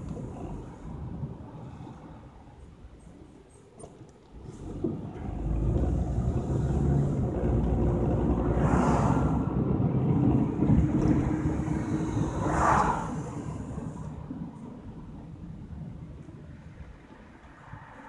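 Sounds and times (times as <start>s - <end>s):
car engine and tyre noise: 0.0s - 18.0s
rushing noise: 4.5s - 15.1s.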